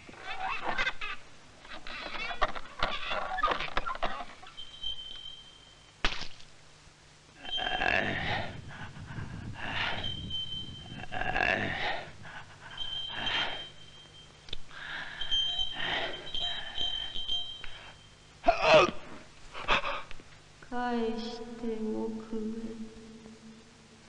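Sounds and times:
person breathing heavily: 8.0 - 14.0, 14.6 - 18.0
faint thin high tone: 12.8 - 18.9.

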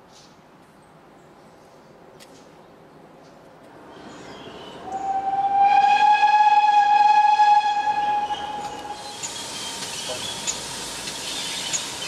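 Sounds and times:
train whistle blast: 4.8 - 9.3.

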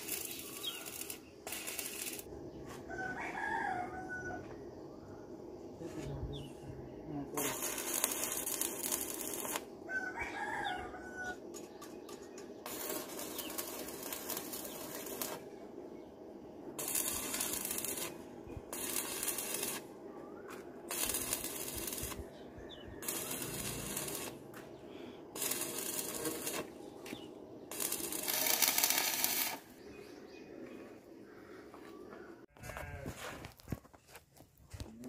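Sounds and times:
arc welding hiss: 0.0 - 2.3, 7.4 - 9.7, 12.7 - 15.4, 16.8 - 19.9, 20.9 - 22.2, 23.0 - 24.4, 25.3 - 29.7.

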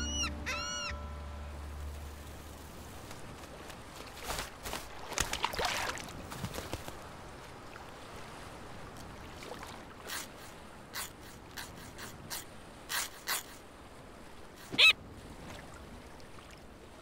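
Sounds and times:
seagull squawk: 0.0 - 1.2, 11.0 - 13.6, 14.6 - 15.0
sea wash: 0.0 - 17.0
cartoon seagull sniffing: 10.1 - 13.6.

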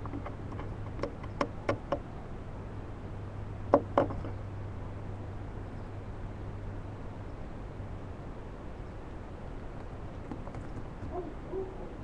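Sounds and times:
knocks and taps in wooden box: 0.0 - 2.0, 3.7 - 4.3
steady low hum: 0.0 - 12.0.

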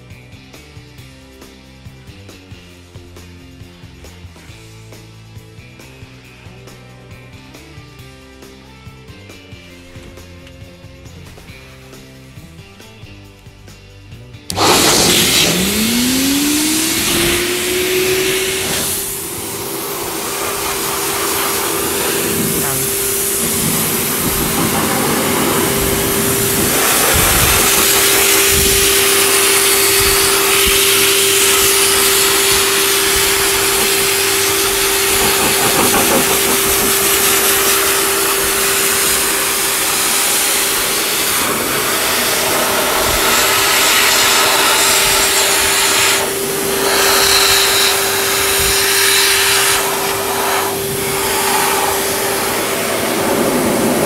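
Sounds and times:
dryer blowing air: 14.5 - 54.0
steady hum: 14.5 - 54.0.

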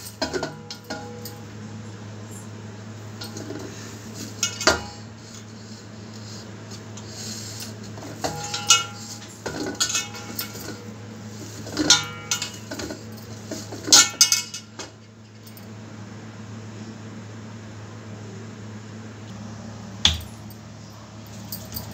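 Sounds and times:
steady low hum: 0.0 - 21.9
steel plate clinking: 8.2 - 10.9, 11.7 - 14.8.

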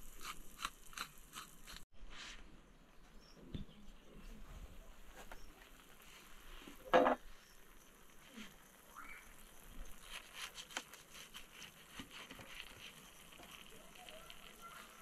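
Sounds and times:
knife cutting soft food: 0.0 - 1.8, 10.0 - 13.0.

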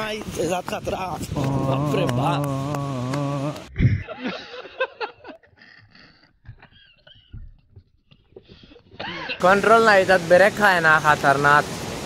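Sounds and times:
man giggling: 1.4 - 7.4.

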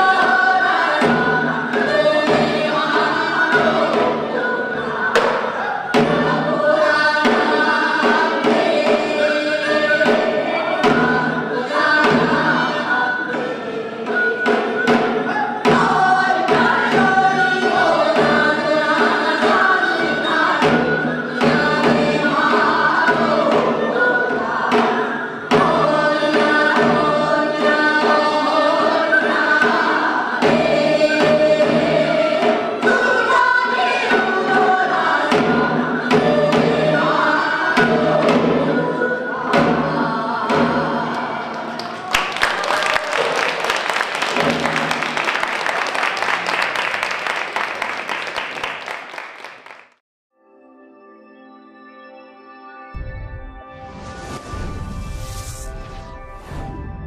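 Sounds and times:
drums striking steady rhythm: 0.0 - 42.0
women singing folk song: 0.0 - 42.1.

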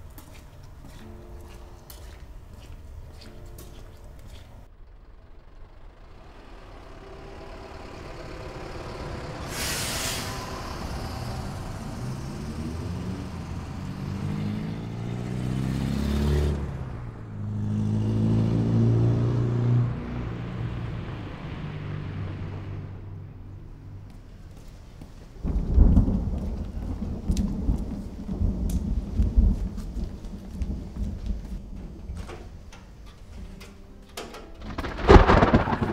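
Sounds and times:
heavy vehicles passing: 0.0 - 34.0, 34.6 - 35.9
loud low engine rumble: 1.3 - 25.0
loud hissing rush: 9.4 - 10.8.

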